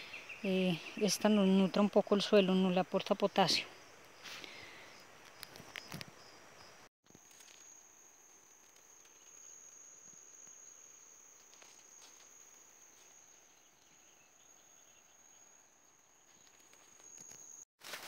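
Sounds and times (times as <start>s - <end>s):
insect trilling: 4.9s - 15.5s
rustles in vegetation: 7.1s - 14.0s, 16.2s - 18.0s.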